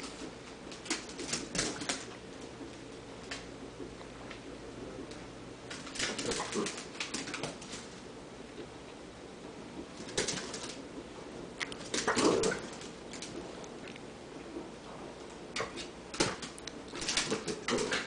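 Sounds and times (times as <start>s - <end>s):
dog claws scrabbling on hard floor: 0.0s - 2.2s, 5.7s - 8.0s, 10.0s - 10.8s.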